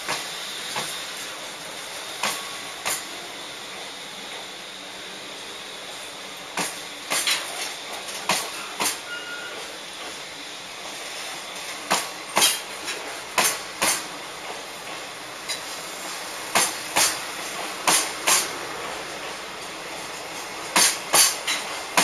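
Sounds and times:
train wheels clacking on rail joints: 0.0s - 1.0s, 2.2s - 4.5s, 6.5s - 10.3s, 11.7s - 22.0s
train rolling rush: 0.0s - 22.0s.

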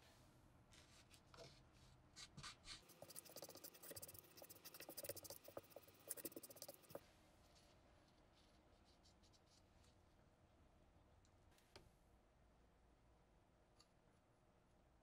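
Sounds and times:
stick scratching and tapping: 2.7s - 7.0s.

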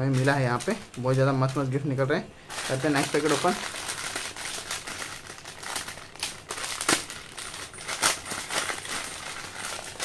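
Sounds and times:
foil snack packet crinkling: 0.0s - 10.0s
scissors cutting packet: 2.9s - 10.0s.

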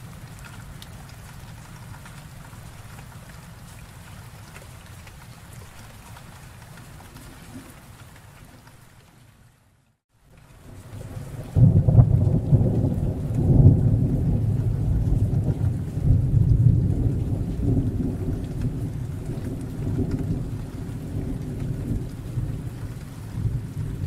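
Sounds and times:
rain: 0.0s - 24.0s
thunder rumbling: 10.6s - 24.0s.

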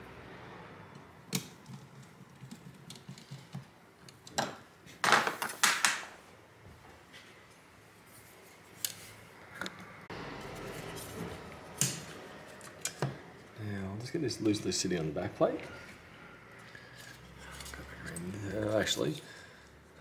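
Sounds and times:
small tools clicking and tapping: 11.8s - 13.2s.

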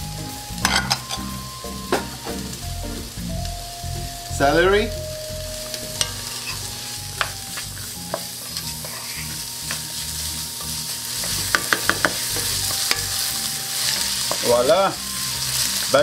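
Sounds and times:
vegetables sizzling in a frying pan: 0.0s - 16.0s
wooden spoon scraping and tapping pan: 7.2s - 9.9s, 10.6s - 13.2s, 13.9s - 14.6s.

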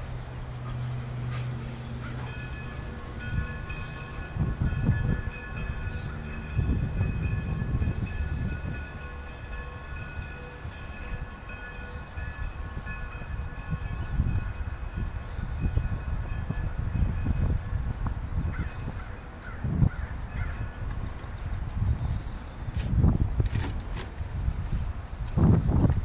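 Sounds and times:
steam locomotive exhaust chuffs: 0.0s - 17.7s
steady chord of high tones: 0.0s - 18.0s.

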